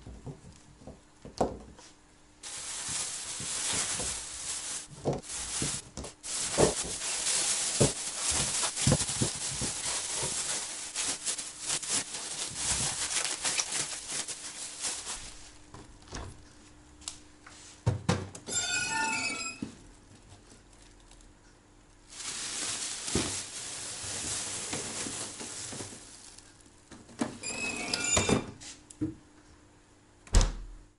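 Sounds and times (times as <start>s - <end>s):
plastic bags rustling: 2.4s - 16.1s, 22.0s - 28.3s
freezer drawer squealing: 18.5s - 19.7s, 27.3s - 28.6s.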